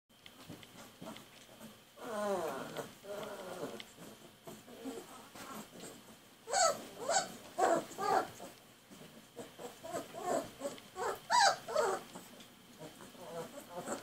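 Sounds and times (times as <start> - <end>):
puppy whining: 2.0 - 14.0.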